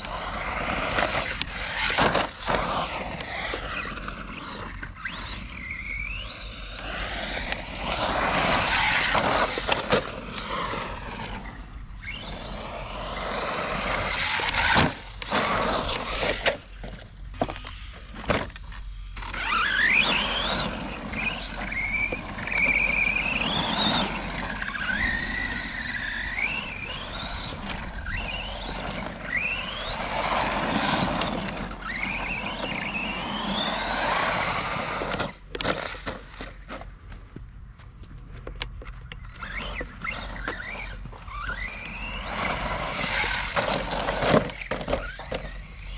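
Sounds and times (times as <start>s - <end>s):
electric motor whining: 0.0s - 37.1s, 38.5s - 45.9s
tyres on loose dirt: 0.0s - 45.9s.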